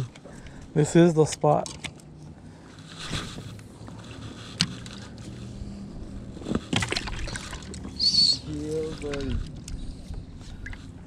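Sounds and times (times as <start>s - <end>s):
boat motor humming: 3.7s - 11.0s.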